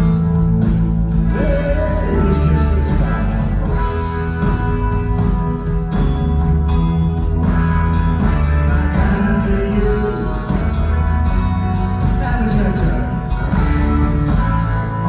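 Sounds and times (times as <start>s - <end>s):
live blues-rock band: 0.0s - 15.0s.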